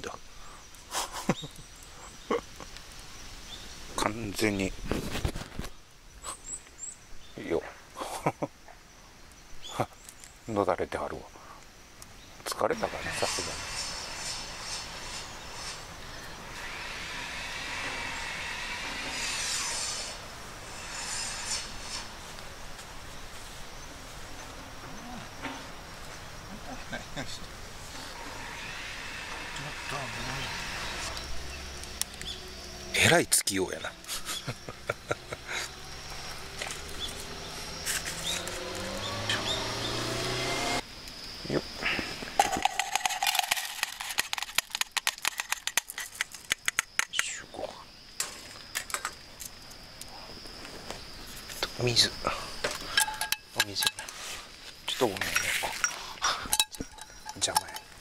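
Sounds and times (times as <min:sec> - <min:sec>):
fire crackling: 0:00.0 - 0:38.9, 0:40.2 - 0:47.4, 0:48.0 - 0:58.0
faint rising tone: 0:35.7 - 0:40.8
rice rattling into a pot: 0:42.4 - 0:46.6.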